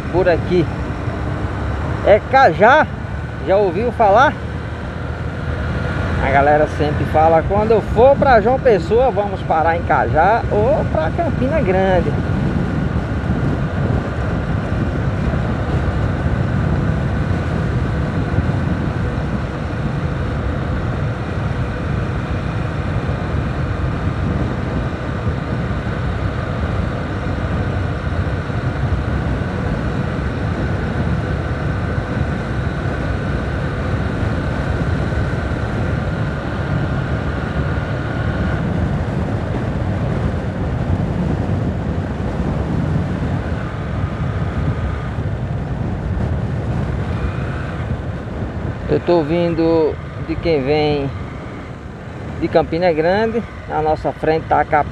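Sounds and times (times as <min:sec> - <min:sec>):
motorcycle engine: 0:00.0 - 0:54.9
road noise: 0:00.0 - 0:54.9
wind buffeting microphone: 0:00.0 - 0:54.9.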